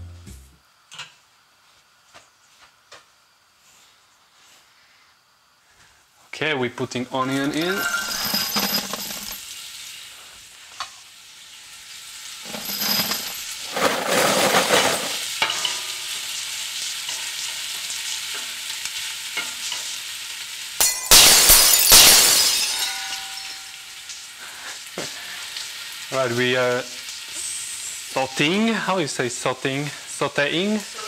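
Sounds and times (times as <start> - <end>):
onion sizzling in a pot: 9.4 - 12.5, 13.4 - 20.8, 23.1 - 31.0.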